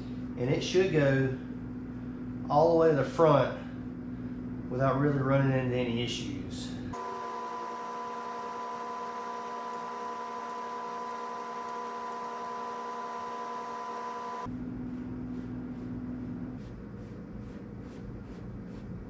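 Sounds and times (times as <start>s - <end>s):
electrical hum with faint hiss: 0.0s - 7.0s.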